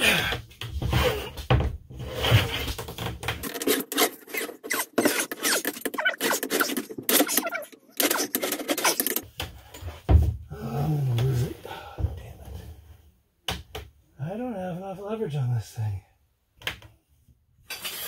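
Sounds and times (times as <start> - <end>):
steel bar scraping on plywood: 2.1 - 9.2.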